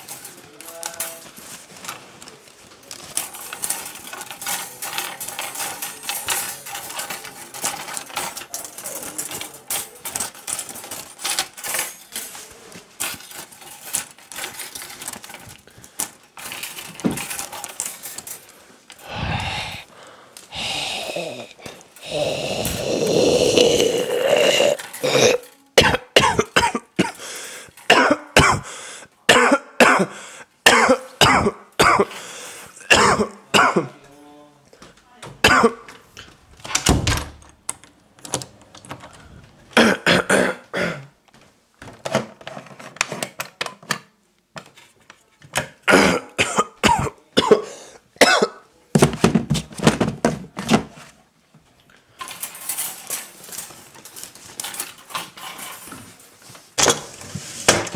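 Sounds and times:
person coughing: 20.5s - 32.2s, 32.8s - 34.0s, 35.4s - 35.9s, 39.8s - 41.2s, 45.9s - 48.7s.

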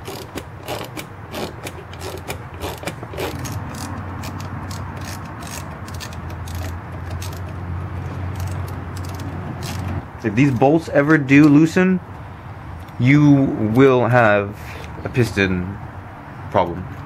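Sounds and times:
socket ratchet clicking: 0.0s - 7.6s, 8.3s - 10.0s.

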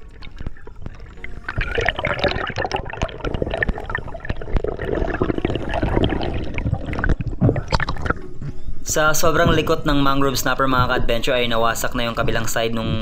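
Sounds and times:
water rushing and gurgling: 0.0s - 8.4s.

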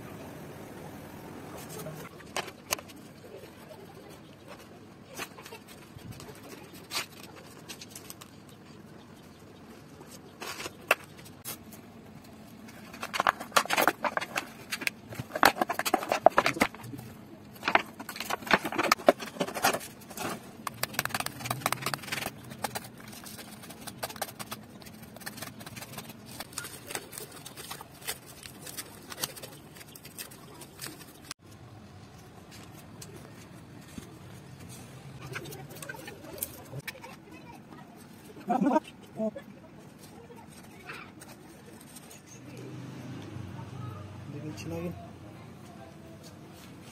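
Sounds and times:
hands scraping sand from plastic: 12.6s - 31.4s.

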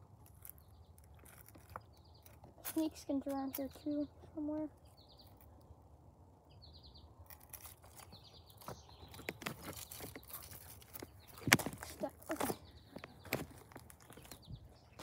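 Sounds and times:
bird chirps: 0.4s - 5.8s, 6.4s - 15.0s
footsteps on gravel: 7.5s - 15.0s.

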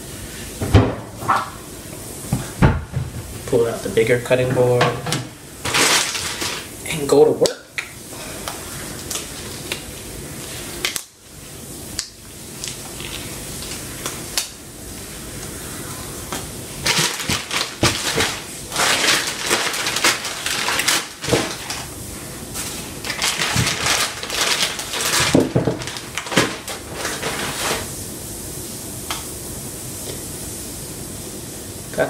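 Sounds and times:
gloved hands crinkling: 16.8s - 27.9s.

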